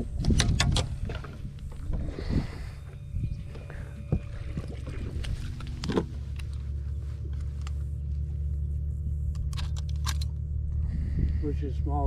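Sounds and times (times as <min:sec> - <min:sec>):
low mechanical hum: 0:00.0 - 0:12.0
handling clicks and knocks: 0:03.5 - 0:07.8.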